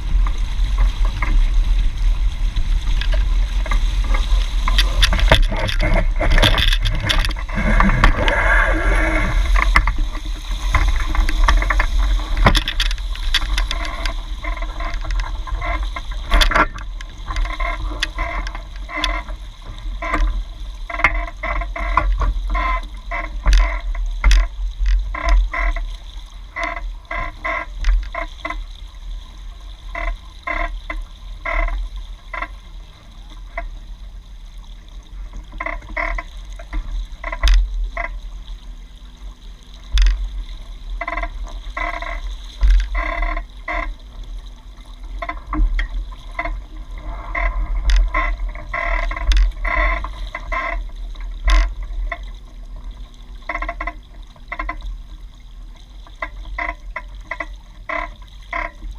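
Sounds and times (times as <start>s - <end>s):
low wind rumble: 0.0s - 21.7s
water splashing along hull: 0.0s - 58.9s.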